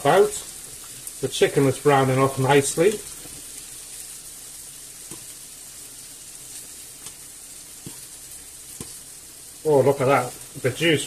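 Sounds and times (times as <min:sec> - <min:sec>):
meat sizzling in a frying pan: 0:00.0 - 0:11.0
metal tongs tapping a pan: 0:05.0 - 0:05.4, 0:07.8 - 0:08.1, 0:08.7 - 0:09.0.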